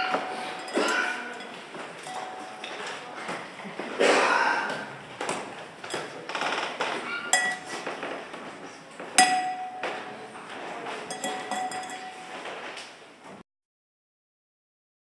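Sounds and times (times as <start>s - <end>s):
small object struck ringing: 9.2s - 10.2s.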